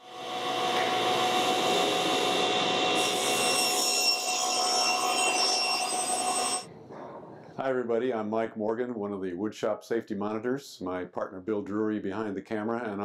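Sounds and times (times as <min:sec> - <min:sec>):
higher whine: 0:00.0 - 0:03.7
saw blade cutting wood: 0:00.0 - 0:06.7
table saw whine: 0:00.0 - 0:06.7.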